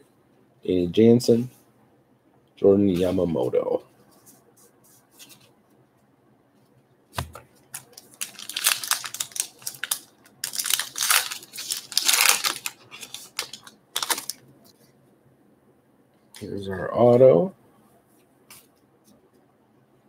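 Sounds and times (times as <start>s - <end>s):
wrapper tearing and crinkling: 7.8s - 14.4s.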